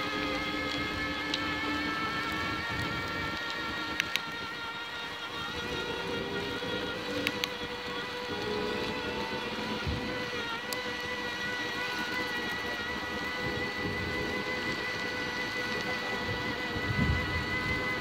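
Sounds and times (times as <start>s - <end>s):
electric bicycle motor whining: 0.0s - 18.0s
sharp clicks: 7.1s - 7.7s.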